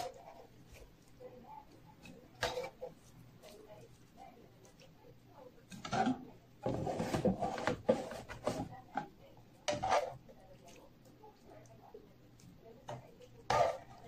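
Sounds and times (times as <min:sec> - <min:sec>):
metal skimmer scraping a pan: 0:05.7 - 0:08.7, 0:09.7 - 0:10.2, 0:12.9 - 0:14.0.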